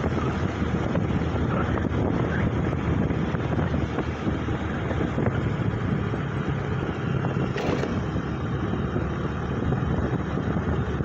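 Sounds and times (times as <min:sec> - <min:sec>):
motorcycle and road noise: 0:00.0 - 0:11.0
wind buffeting microphone: 0:00.0 - 0:11.0.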